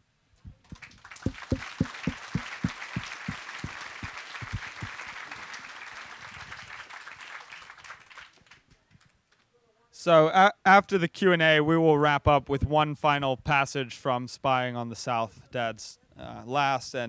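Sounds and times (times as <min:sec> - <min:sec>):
audience applauding: 0:00.6 - 0:08.6.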